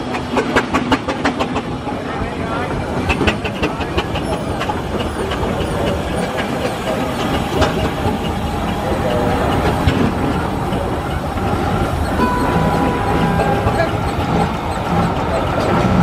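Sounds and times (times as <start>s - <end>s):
steam engines clanking: 0.0s - 16.0s
crowd chatter: 1.9s - 16.0s.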